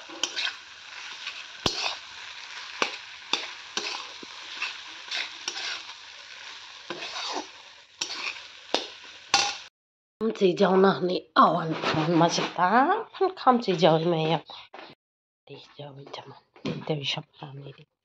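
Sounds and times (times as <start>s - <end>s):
food sizzling in a wok: 0.0s - 9.7s
metal spoon scraping a pan: 0.0s - 9.7s.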